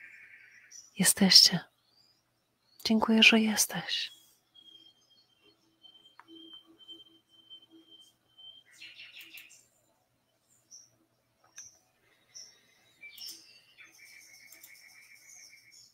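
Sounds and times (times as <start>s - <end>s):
birds chirping faintly: 0.0s - 15.9s
rapid bird trill: 3.5s - 9.7s.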